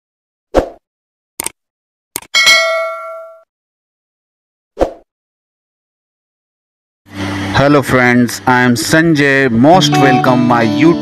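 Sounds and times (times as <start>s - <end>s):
bell ding: 2.4s - 3.5s.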